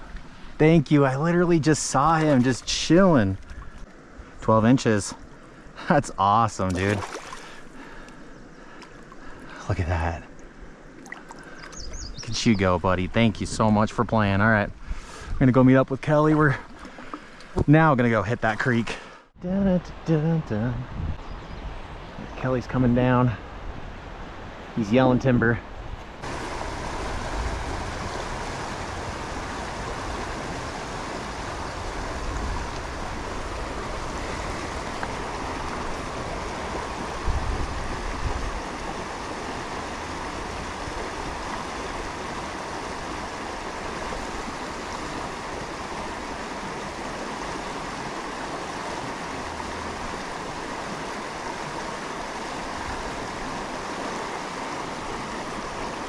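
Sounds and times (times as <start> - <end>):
river rushing over rocks: 26.2 - 56.0.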